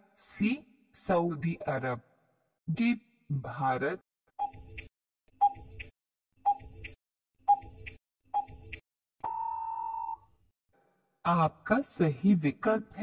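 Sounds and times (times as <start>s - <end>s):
timer ticks: 4.4s - 5.9s, 6.5s - 8.8s
long steady beep: 9.2s - 10.2s.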